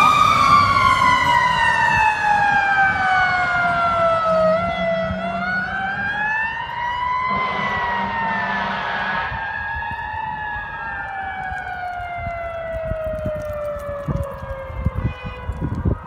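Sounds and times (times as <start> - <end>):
mechanical siren winding down: 0.0 - 15.0
second siren rising and falling: 0.0 - 15.5
low rumbling bumps: 7.3 - 11.2.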